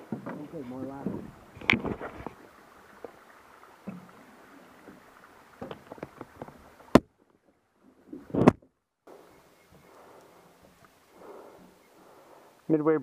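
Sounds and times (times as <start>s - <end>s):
faint hiss: 9.1s - 13.0s.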